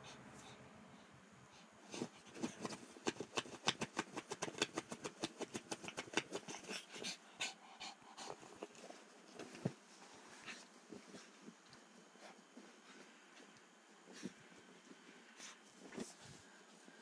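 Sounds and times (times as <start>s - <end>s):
dog scratching at pillow: 1.9s - 6.9s.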